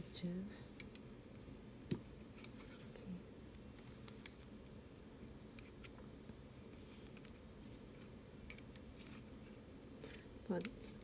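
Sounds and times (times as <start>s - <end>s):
low room hum: 0.0s - 11.0s
knitting needles clicking: 10.0s - 11.0s.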